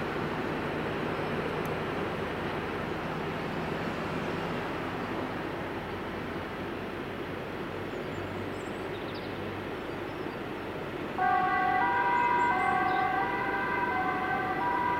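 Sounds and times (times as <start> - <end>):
street traffic noise: 0.0 - 14.9
fire truck two-tone siren: 11.2 - 14.9.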